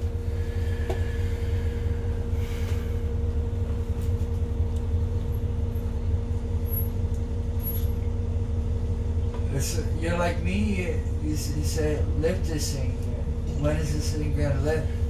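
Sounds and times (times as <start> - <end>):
bus engine idling: 0.0 - 15.0
steady hum: 0.0 - 15.0.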